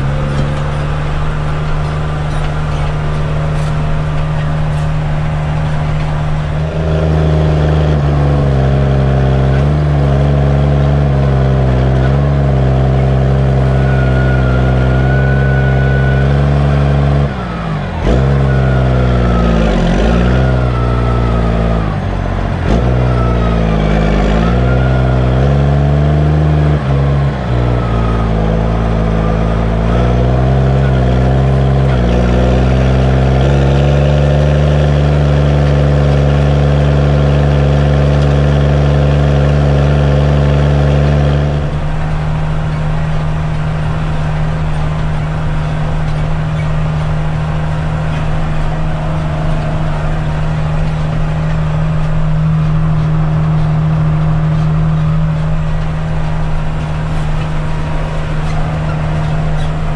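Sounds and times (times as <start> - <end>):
tractor diesel engine under load: 0.0 - 59.9.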